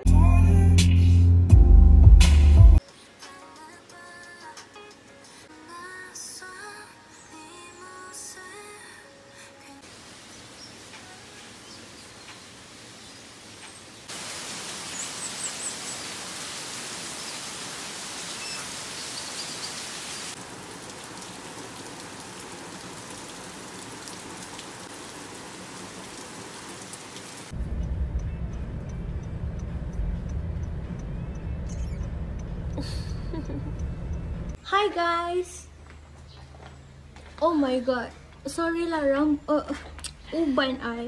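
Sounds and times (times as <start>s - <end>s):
rain hissing: 9.8s - 34.5s
faint high chirps: 18.4s - 19.8s, 31.0s - 34.3s
low rumble: 27.5s - 34.6s.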